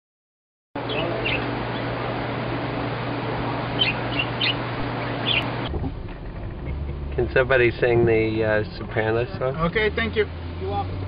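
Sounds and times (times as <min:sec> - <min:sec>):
steady hiss and low hum: 0:00.8 - 0:11.0
budgerigars chirping: 0:00.9 - 0:01.9, 0:03.8 - 0:05.6.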